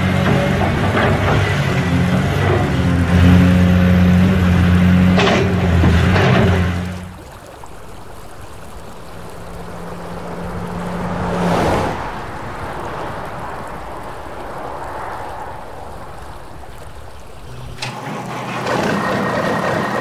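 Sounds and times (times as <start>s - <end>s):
river water flowing: 0.0s - 20.0s.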